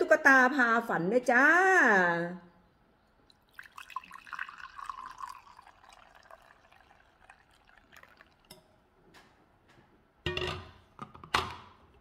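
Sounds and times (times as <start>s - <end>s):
coffee pouring into cup: 3.3s - 8.7s.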